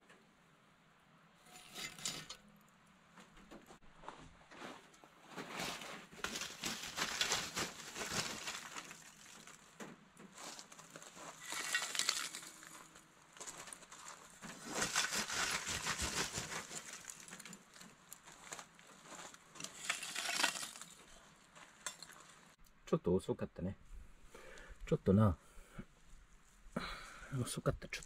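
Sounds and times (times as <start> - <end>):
charcoal rattling on metal shovel: 1.4 - 2.4, 5.4 - 9.7, 10.3 - 22.5.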